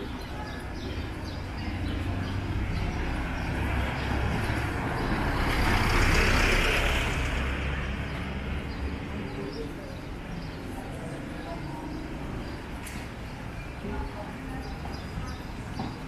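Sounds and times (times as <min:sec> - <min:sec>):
vehicle passing by: 0:01.7 - 0:09.8.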